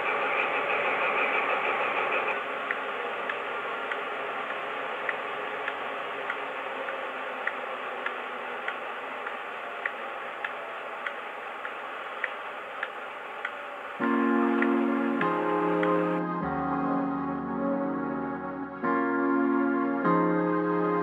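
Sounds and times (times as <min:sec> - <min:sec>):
steady hiss from speaker: 0:00.0 - 0:16.3
light ticks: 0:02.6 - 0:13.6.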